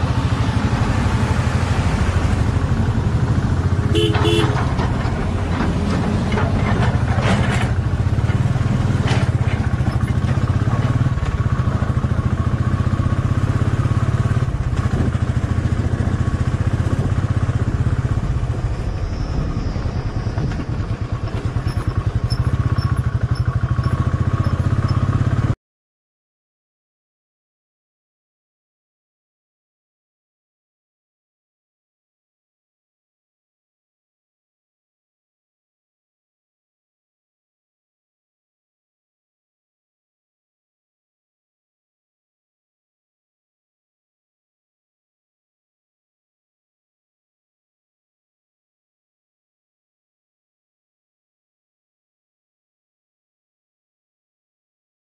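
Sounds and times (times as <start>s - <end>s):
motorcycle engine running: 0.0s - 25.6s
vehicle horn toots: 3.8s - 4.8s.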